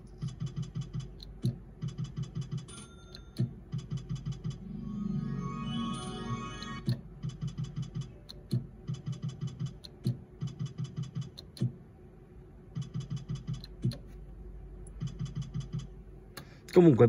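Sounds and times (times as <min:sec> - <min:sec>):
slot machine win tune: 0:04.6 - 0:06.9
slot machine spin click: 0:04.9 - 0:06.9.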